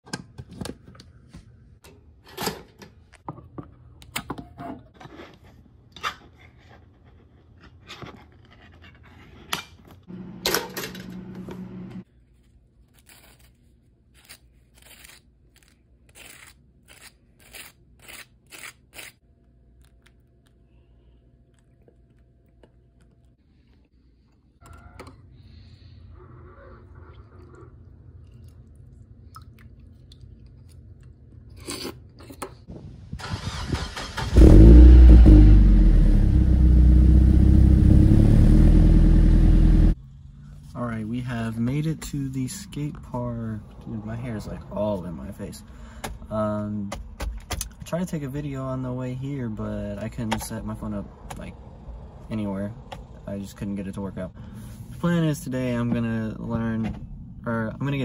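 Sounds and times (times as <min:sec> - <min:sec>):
knife scraping peanut butter: 0:14.2 - 0:19.2.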